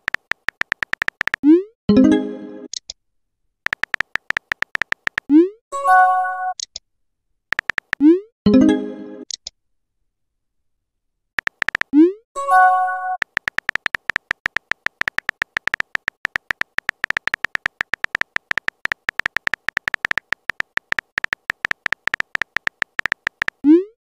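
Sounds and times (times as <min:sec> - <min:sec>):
phone keyboard typing clicks: 0:00.0 - 0:01.4, 0:03.6 - 0:05.4, 0:07.5 - 0:08.1, 0:11.4 - 0:12.0, 0:13.2 - 0:23.6.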